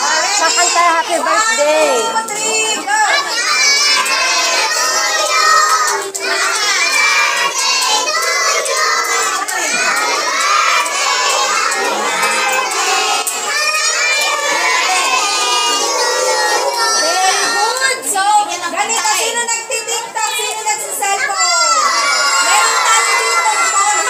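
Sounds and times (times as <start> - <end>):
children singing loudly: 0.0 - 18.0, 21.2 - 24.0
hand-clapping: 3.3 - 16.0.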